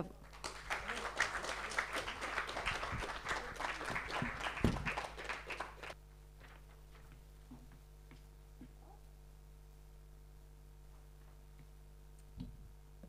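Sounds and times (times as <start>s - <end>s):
audience applauding: 0.0s - 6.0s
faint room hum: 0.0s - 13.0s.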